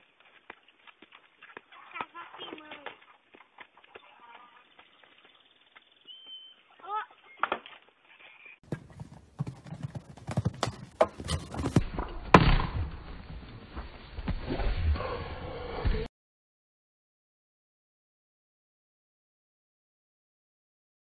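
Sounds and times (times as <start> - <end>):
horse hoofbeats on sand: 0.0 - 6.5, 8.6 - 11.9.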